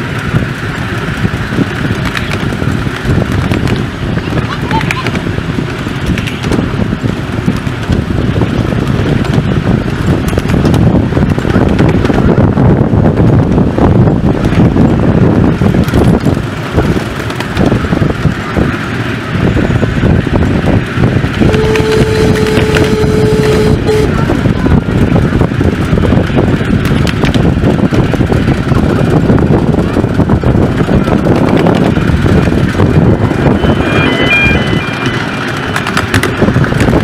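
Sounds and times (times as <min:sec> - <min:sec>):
train wheels rumbling on track: 0:00.0 - 0:37.0
steam locomotive whistle: 0:21.4 - 0:24.3, 0:33.4 - 0:35.3.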